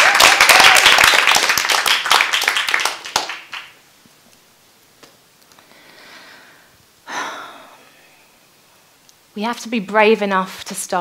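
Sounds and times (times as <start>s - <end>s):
audience applauding: 0.0s - 3.8s.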